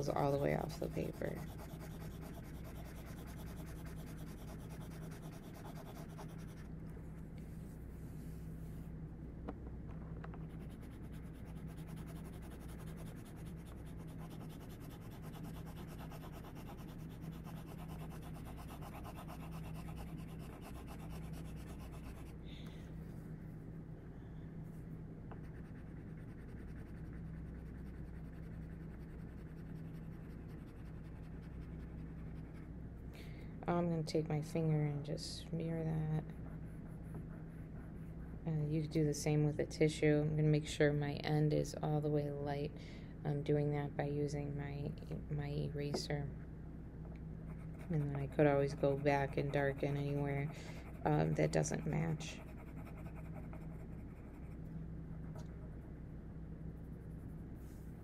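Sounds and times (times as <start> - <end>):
pencil scratching on paper: 0.0 - 6.7, 10.5 - 22.3, 47.5 - 54.6
low hum: 0.0 - 58.0.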